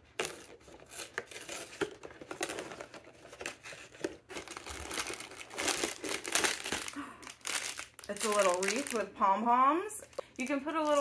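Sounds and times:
plastic bag crinkling: 0.1 - 9.2, 10.0 - 11.0.

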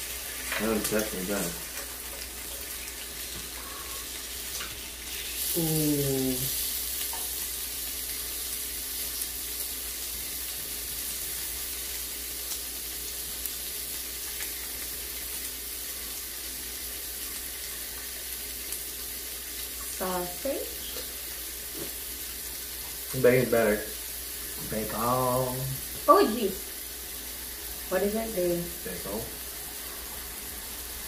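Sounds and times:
meat sizzling on a grill: 0.0 - 31.0
person humming: 5.5 - 6.6.

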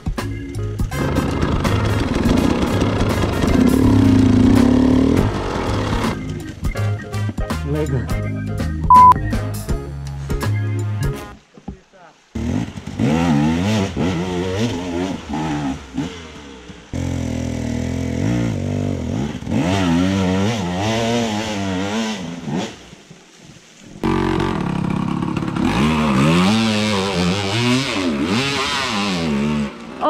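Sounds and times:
dirt bike engines revving: 1.0 - 6.6, 12.3 - 23.0, 24.0 - 30.0.

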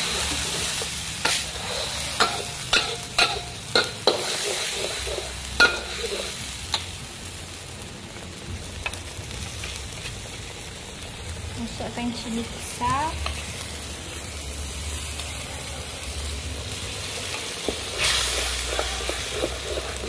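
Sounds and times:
metal spatula scraping a wok: 0.0 - 6.9, 17.0 - 20.0
spice paste sizzling in hot oil: 0.0 - 20.0.

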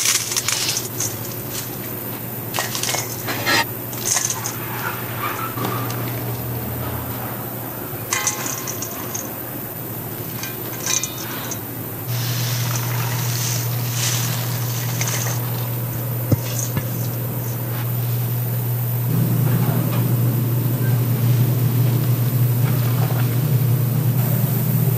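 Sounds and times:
steady low hum: 0.0 - 24.9
kitchen clinks and clatters: 2.5 - 6.0, 8.1 - 9.4, 10.2 - 11.7.

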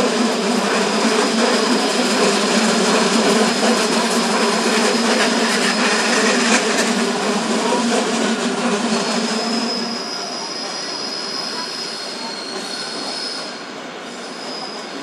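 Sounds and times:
electric train passing: 0.0 - 15.0
high wheel squeal: 4.4 - 6.7, 8.6 - 15.0.

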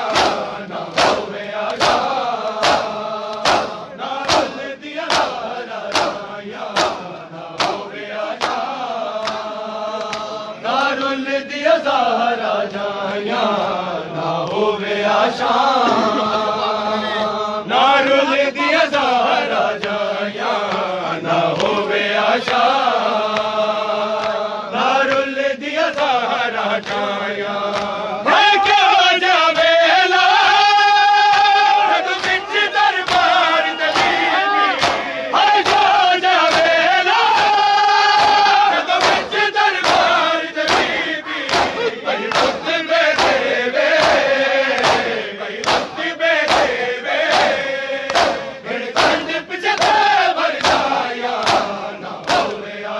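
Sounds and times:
chest-beating slaps: 0.0 - 11.2, 32.2 - 35.9, 38.2 - 52.6
men chanting a lament: 0.0 - 52.9.

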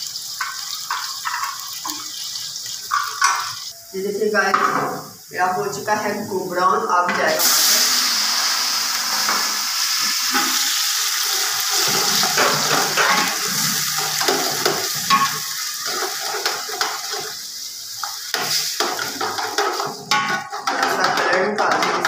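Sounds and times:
onions sizzling in hot oil: 0.0 - 22.0
metal spoon stirring and scraping: 11.7 - 17.4, 18.0 - 22.0.

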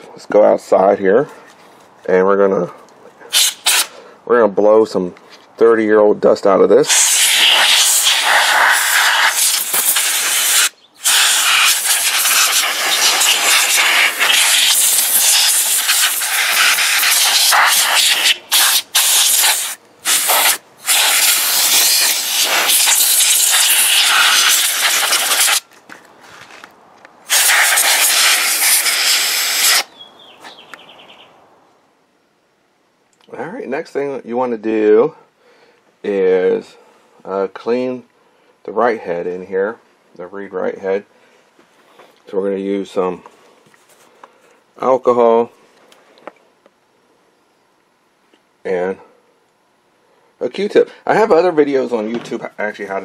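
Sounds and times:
compressed air duster hissing: 3.3 - 4.1, 6.9 - 25.6, 27.3 - 29.9.

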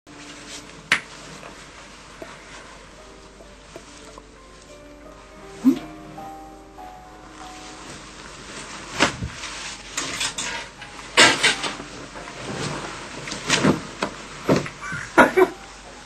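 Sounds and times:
clothes swishing and rustling: 0.1 - 6.5, 7.3 - 16.0.

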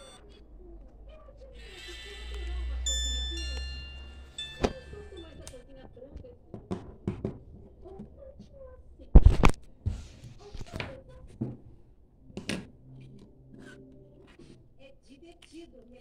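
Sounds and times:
phones knocking on wooden table: 6.5 - 7.6.

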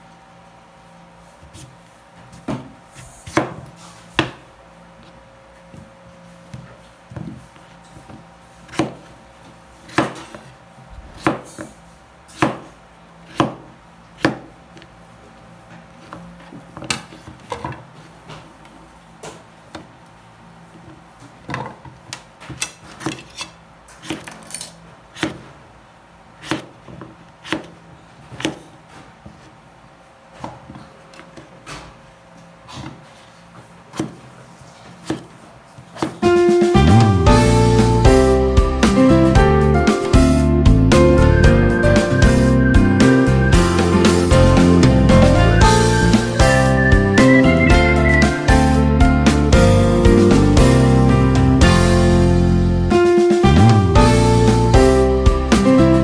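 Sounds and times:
knife chopping on wooden board: 2.3 - 4.4, 8.1 - 9.1, 9.8 - 10.5, 11.1 - 12.7, 13.3 - 14.5, 25.2 - 25.5, 26.4 - 28.7, 35.0 - 36.2.

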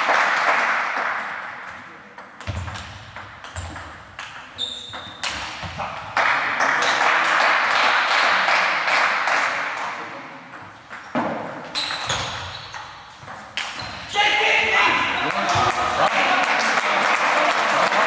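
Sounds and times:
spectators applauding: 0.0 - 1.2, 15.2 - 18.0.

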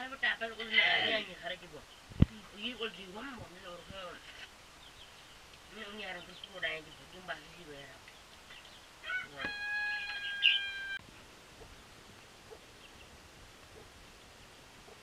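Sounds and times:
rooster crowing: 9.0 - 11.0.

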